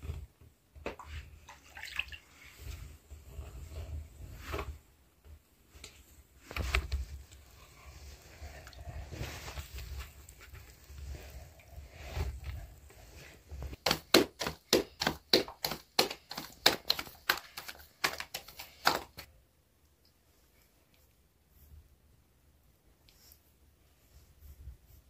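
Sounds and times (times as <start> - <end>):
soft handling sounds: 2.4 - 13.8, 19.9 - 25.0
dough slapped between palms: 13.8 - 19.3.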